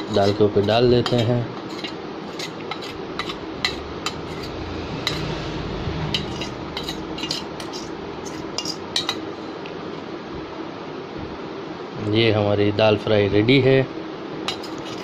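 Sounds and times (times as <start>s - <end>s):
steel spoon scraping pan: 0.0s - 9.6s, 14.5s - 15.0s
steady background noise: 0.0s - 15.0s.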